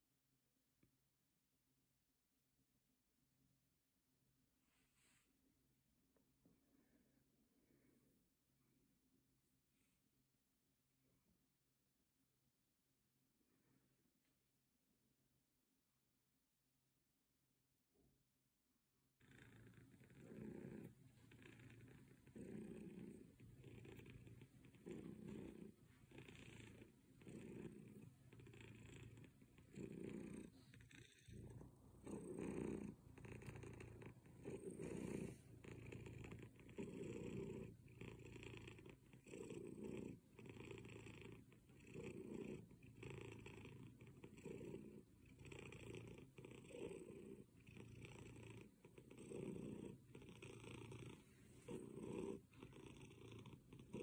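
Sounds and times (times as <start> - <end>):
cat purring: 19.2 - 54.0.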